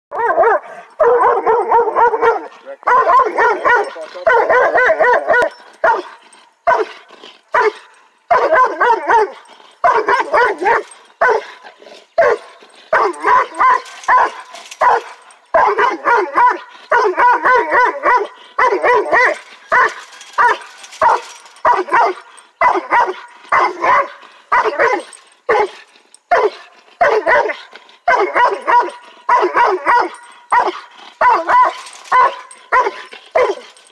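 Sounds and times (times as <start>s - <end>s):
dog barking and bawling: 0.1s - 33.9s.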